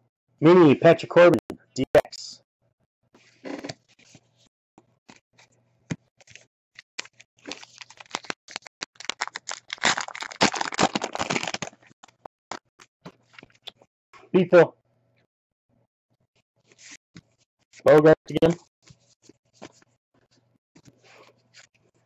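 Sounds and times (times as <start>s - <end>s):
pack wrapper tearing and crinkling: 7.0s - 12.2s.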